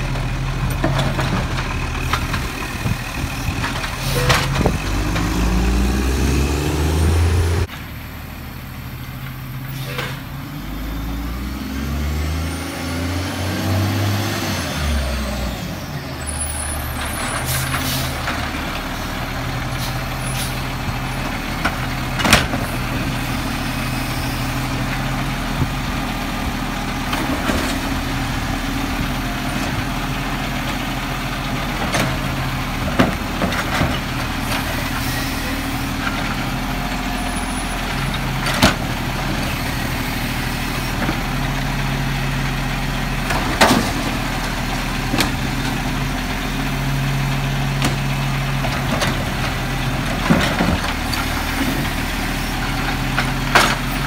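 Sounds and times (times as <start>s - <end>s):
garbage truck diesel engine: 0.0s - 54.0s
metal arm and carts clanking: 0.1s - 8.0s, 43.1s - 54.0s
air brakes hissing: 9.6s - 10.2s.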